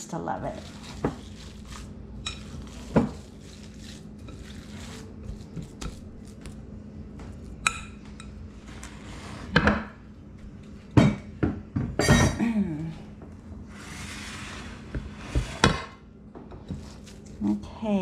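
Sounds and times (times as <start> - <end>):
hands mixing meat in bowl: 0.2 - 6.7.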